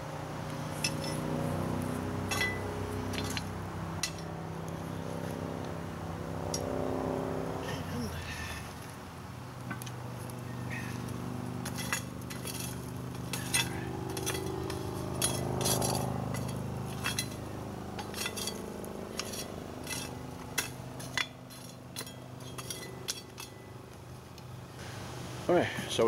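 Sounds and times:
steady low hum: 0.0 - 26.0
metal tongs clinking on coals: 0.7 - 1.4, 2.2 - 4.4, 9.7 - 24.5.

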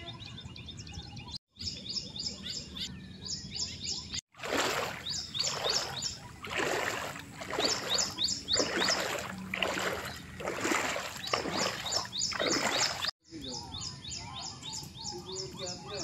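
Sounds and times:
birds chirping: 0.0 - 16.0
water splashing and sloshing: 4.2 - 13.2.

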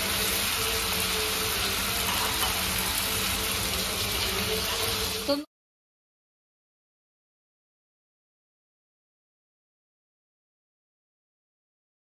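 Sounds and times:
prawns sizzling in hot oil: 0.0 - 5.5.

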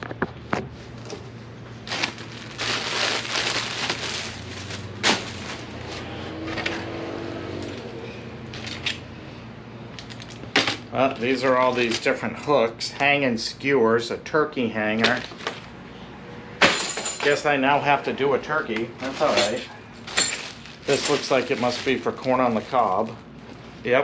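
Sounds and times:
packaging rustling and crinkling: 0.9 - 6.2, 19.0 - 23.9.

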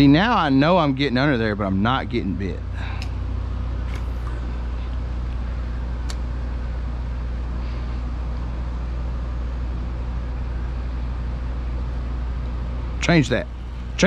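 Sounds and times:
low mechanical hum: 0.0 - 14.0
sharp click: 6.0 - 6.2.

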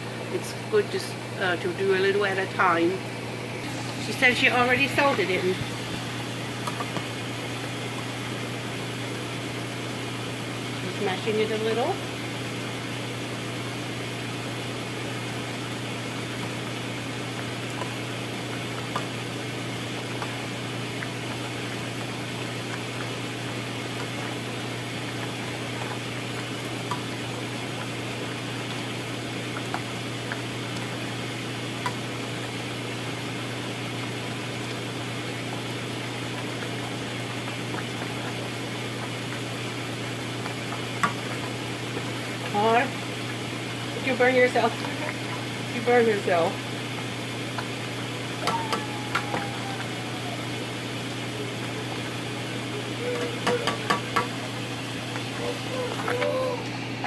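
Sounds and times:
lentils simmering in a pot: 0.1 - 57.0
masher tapping a pot: 53.2 - 54.4.

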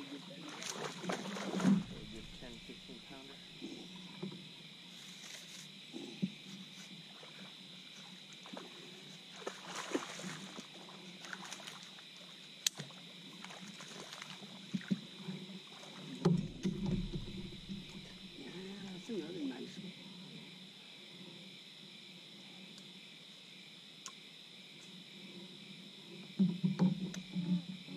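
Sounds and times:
water sloshing and splashing: 0.0 - 5.6, 6.2 - 20.0
steady high hum: 0.0 - 8.2, 15.7 - 25.5
knocks on boat: 16.2 - 18.0.

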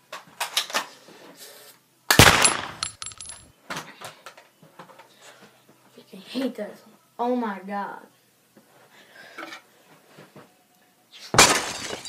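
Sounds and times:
grenade explosion bang: 2.2 - 2.8.

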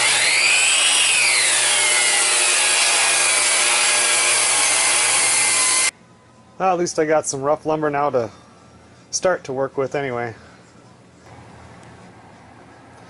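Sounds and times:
table saw ripping wood: 0.0 - 5.9.

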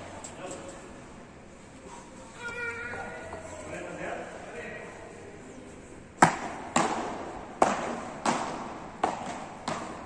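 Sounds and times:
paddle rackets hitting ball: 6.2 - 10.0.

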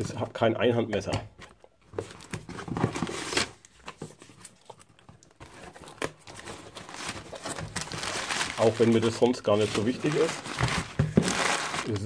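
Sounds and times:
cardboard flaps scraping and rustling: 2.0 - 4.8, 5.4 - 12.0
packing tape tearing: 5.8 - 12.0.

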